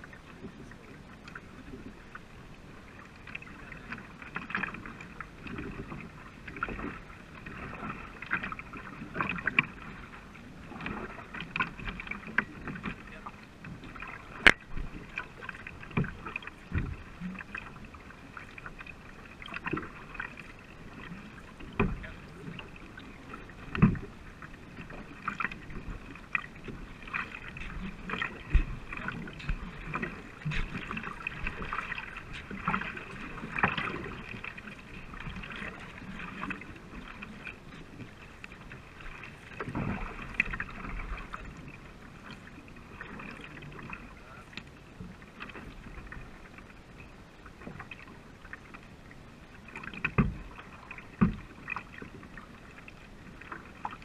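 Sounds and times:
water hissing along hull: 0:00.0 - 0:46.6
paddles splashing water: 0:00.0 - 0:54.0
paddle knocks: 0:10.8 - 0:17.7, 0:20.9 - 0:41.6, 0:49.7 - 0:52.1.

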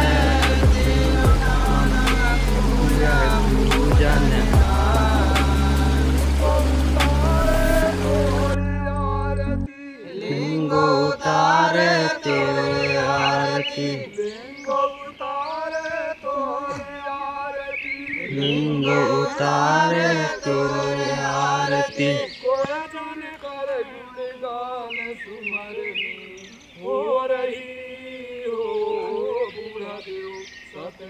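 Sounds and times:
bassy music: 0:00.0 - 0:09.7
men chanting a prayer song: 0:00.0 - 0:31.0.

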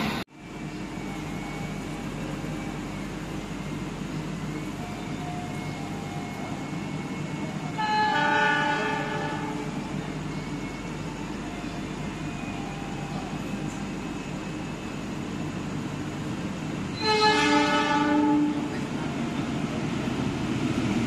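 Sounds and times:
standing train humming: 0:00.0 - 0:21.0
train horn: 0:07.7 - 0:09.9, 0:16.9 - 0:18.9.

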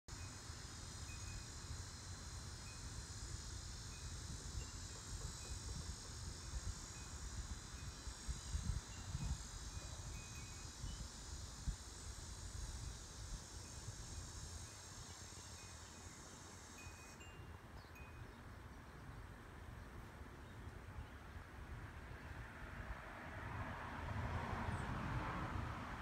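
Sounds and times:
steady high hiss: 0:00.1 - 0:20.8.

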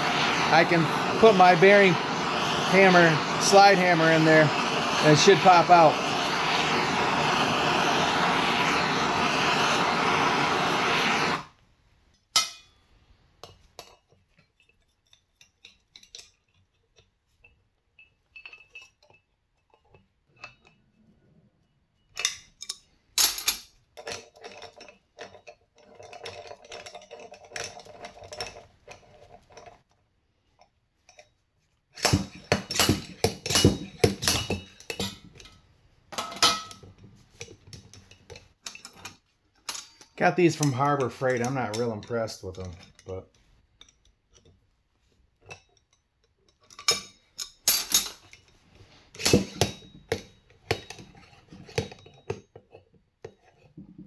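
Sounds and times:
blowtorch hissing: 0:00.0 - 0:11.6, 0:32.0 - 0:35.2, 0:40.2 - 0:42.7.

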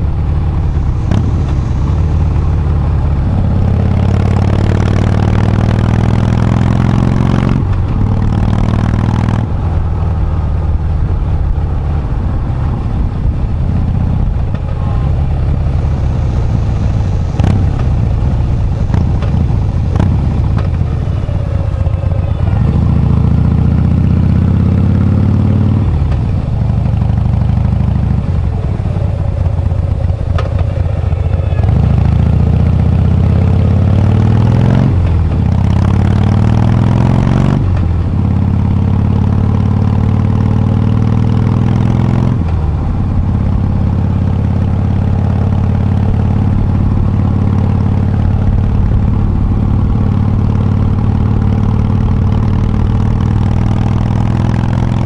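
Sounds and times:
motorcycle engine accelerating: 0:00.0 - 0:55.0.

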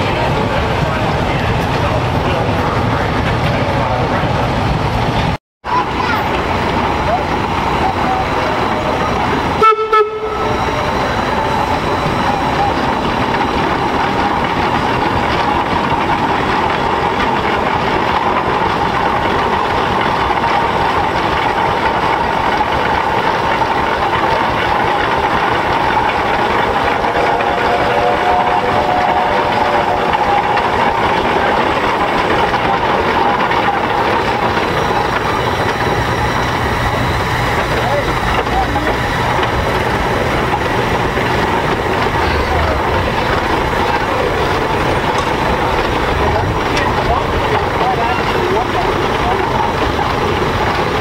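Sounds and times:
steam traction engine running: 0:00.0 - 0:51.0.

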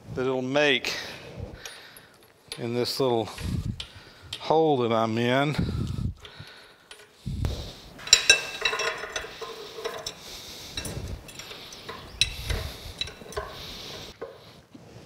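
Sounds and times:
wrench clinking on metal fittings: 0:01.6 - 0:04.6, 0:06.2 - 0:14.4.

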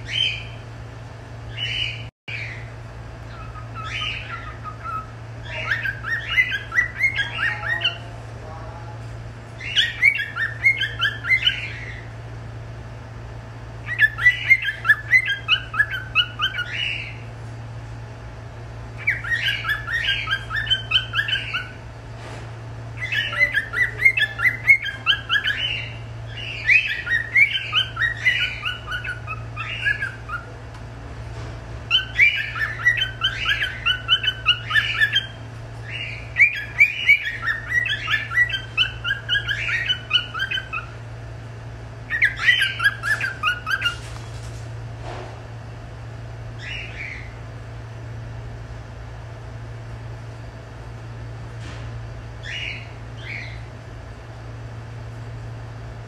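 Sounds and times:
cockatiel chirping: 0:00.0 - 0:00.6, 0:01.5 - 0:02.7, 0:03.3 - 0:08.0, 0:09.6 - 0:12.1, 0:13.8 - 0:17.2, 0:19.0 - 0:21.8, 0:23.0 - 0:30.5, 0:31.9 - 0:41.0, 0:42.1 - 0:44.1, 0:46.6 - 0:47.4, 0:52.4 - 0:53.6
steady low hum: 0:00.0 - 0:56.0.

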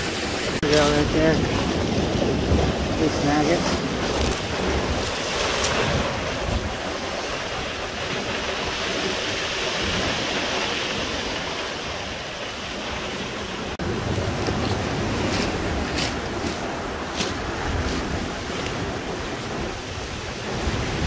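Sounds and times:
surf breaking on cobble beach: 0:00.0 - 0:21.0
wind gusting on microphone: 0:00.0 - 0:21.0.

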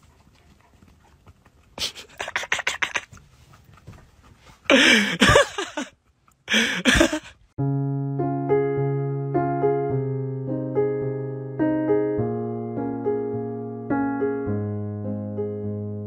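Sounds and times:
gentle electric piano music: 0:07.6 - 0:16.0.

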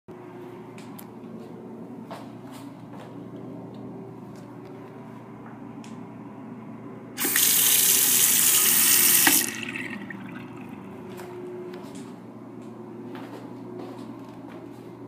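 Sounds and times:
faucet water splashing into sink: 0:07.2 - 0:10.7.

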